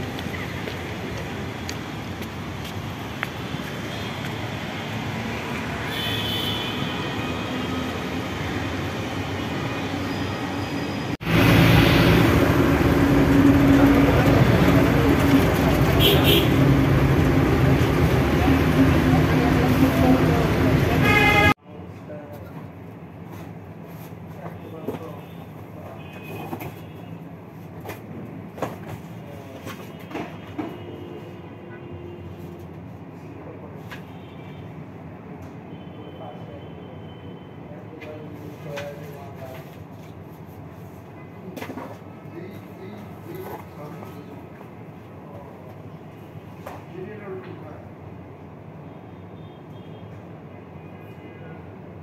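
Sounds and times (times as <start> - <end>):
buses passing: 0.0 - 21.6
outdoor street noise: 0.0 - 52.0
bus cabin noise: 12.2 - 21.6.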